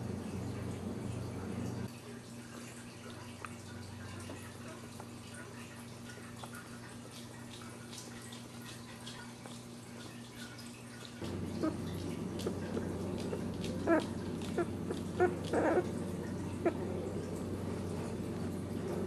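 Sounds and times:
steady low hum: 0:00.0 - 0:01.9, 0:11.1 - 0:19.0
puppies squeaking and whimpering: 0:12.7 - 0:16.9.

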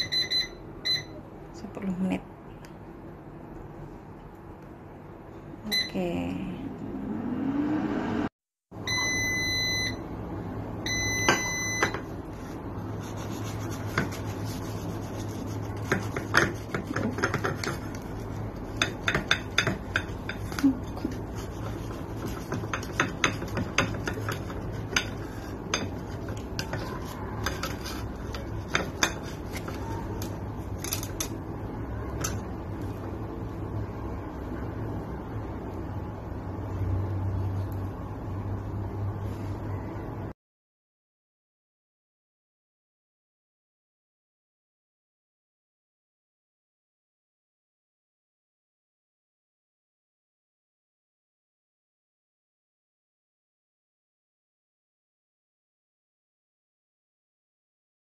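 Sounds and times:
knife scraping on ceramic plate: 0:13.0 - 0:29.9.

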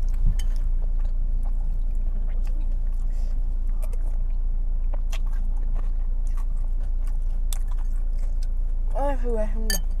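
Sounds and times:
person chewing: 0:00.0 - 0:08.8
low hum: 0:00.0 - 0:10.0
metal spoon clicking on a bowl: 0:09.7 - 0:09.9.

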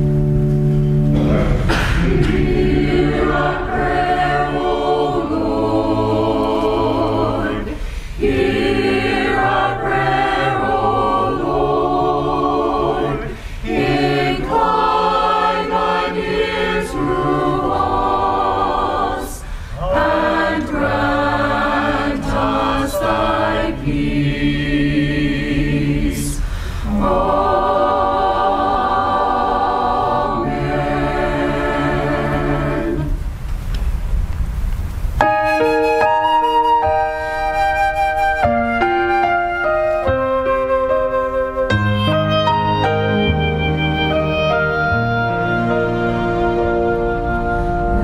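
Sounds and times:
choir singing: 0:01.2 - 0:33.3, 0:41.9 - 0:48.0.

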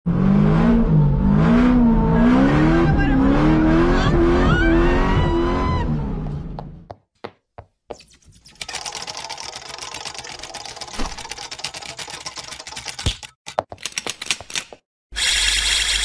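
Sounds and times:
rapid clicks like typing: 0:08.5 - 0:14.7.

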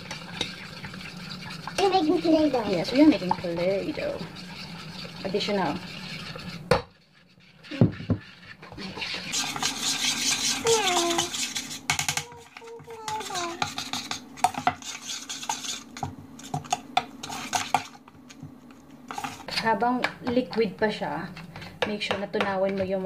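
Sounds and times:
metal spoon scraping a saucepan: 0:00.0 - 0:18.0.

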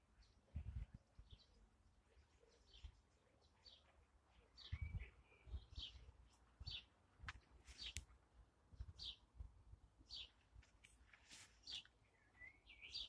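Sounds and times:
bird chirps: 0:01.2 - 0:07.0, 0:08.8 - 0:09.3, 0:10.0 - 0:10.4, 0:11.5 - 0:13.0.

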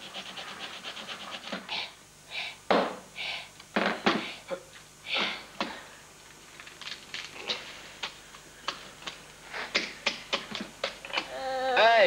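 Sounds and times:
breathy puff: 0:05.1 - 0:05.9.

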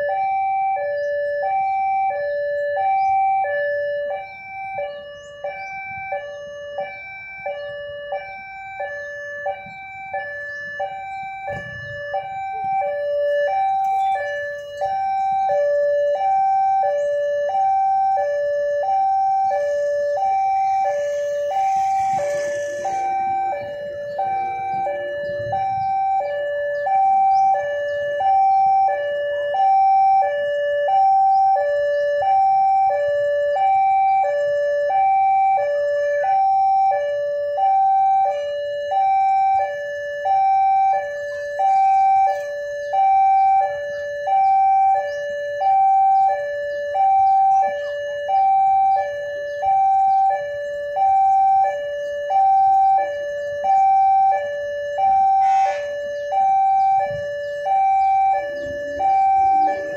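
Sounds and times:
two-tone level-crossing alarm: 0:00.0 - 0:59.9.

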